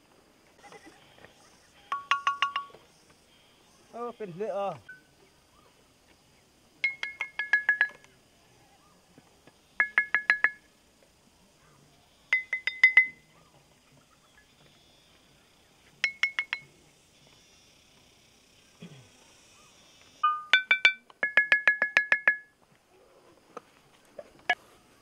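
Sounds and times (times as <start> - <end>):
stone lithophone strikes: 2.0 - 2.8, 6.8 - 8.0, 9.8 - 10.6, 20.2 - 22.5.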